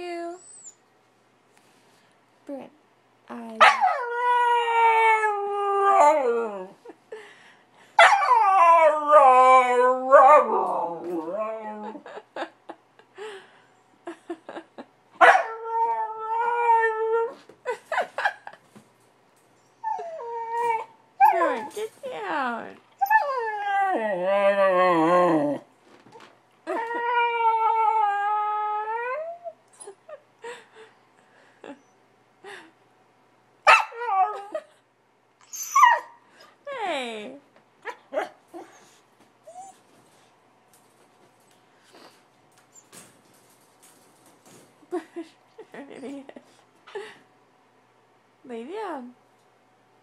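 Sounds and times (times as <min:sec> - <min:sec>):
puppy howling: 0:03.6 - 0:06.8, 0:08.0 - 0:12.0, 0:33.7 - 0:34.6
puppy yipping and bark-howling: 0:15.2 - 0:15.6, 0:33.7 - 0:34.4, 0:35.5 - 0:36.2.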